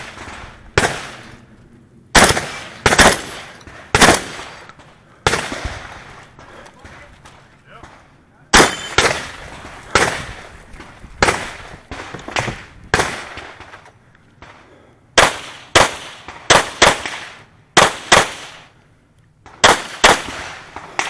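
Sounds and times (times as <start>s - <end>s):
shotgun shots: 0.0s - 1.4s, 2.1s - 6.2s, 6.8s - 10.5s, 11.2s - 13.8s, 15.2s - 18.7s, 19.5s - 21.0s
pistol fired rapidly: 2.2s - 4.5s, 15.2s - 17.2s, 17.8s - 18.6s, 19.6s - 21.0s.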